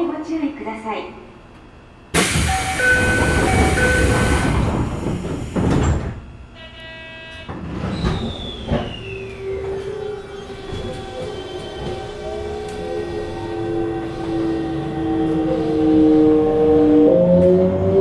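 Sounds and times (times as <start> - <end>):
train doors sliding shut: 2.1 - 6.4, 7.4 - 17.5
short buzzing tone: 6.6 - 7.5.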